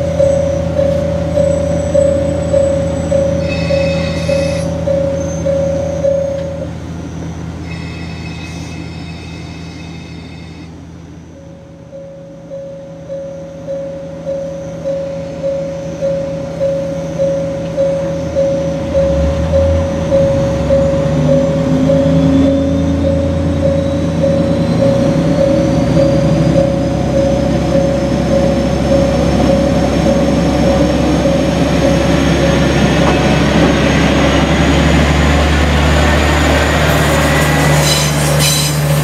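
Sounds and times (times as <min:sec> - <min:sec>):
level-crossing alarm ringing: 0:00.0 - 0:38.7
diesel railcar engine: 0:00.0 - 0:39.0
train wheels clicking over rail joints: 0:23.0 - 0:39.0.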